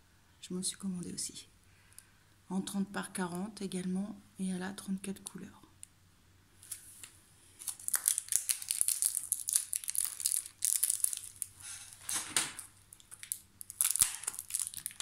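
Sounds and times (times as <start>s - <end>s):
plastic packaging crinkling: 6.6s - 15.0s.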